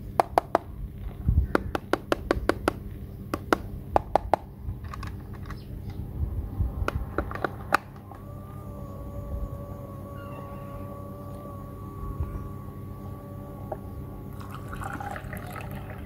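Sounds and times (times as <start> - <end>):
small electric motor whine: 6.0 - 16.0.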